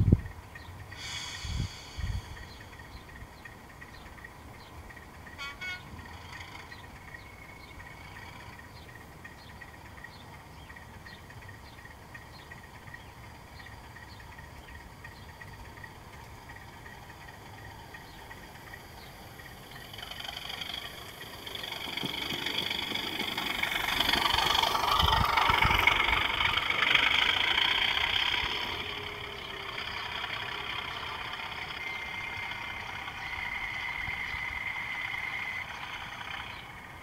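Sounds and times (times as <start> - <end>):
distant diesel locomotive engine: 0.0 - 37.0
locomotive horn toot: 5.3 - 6.7.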